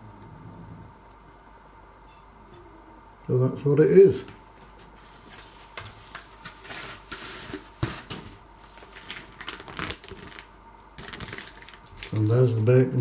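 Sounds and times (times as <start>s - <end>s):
packaging crackling: 7.5s - 12.7s.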